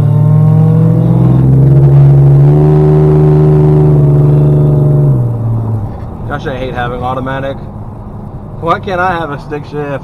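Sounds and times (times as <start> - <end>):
engine drone from inside car: 0.0 - 10.0.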